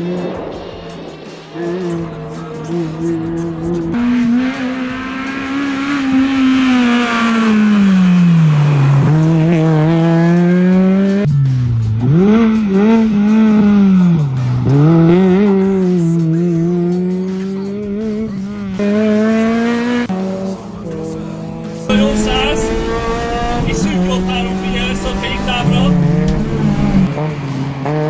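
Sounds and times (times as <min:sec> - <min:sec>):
car engine revving hard: 0:01.6 - 0:28.0.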